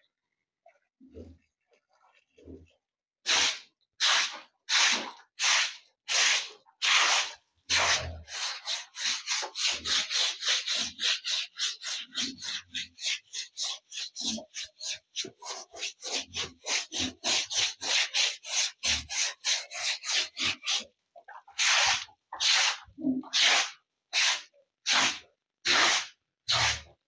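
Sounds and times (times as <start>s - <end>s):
broom scrubbing wet concrete: 3.3s - 27.0s.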